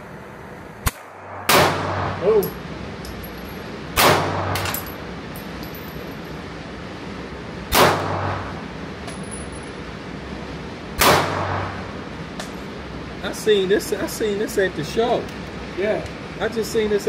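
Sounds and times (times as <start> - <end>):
gunshots with echo: 0.9 - 2.2, 4.0 - 4.6, 7.7 - 8.5, 11.0 - 11.8.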